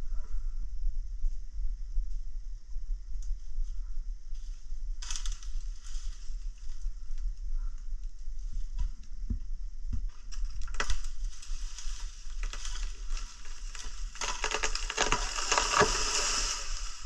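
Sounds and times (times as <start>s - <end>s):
twigs crunching underfoot: 5.0s - 6.9s, 10.1s - 17.0s.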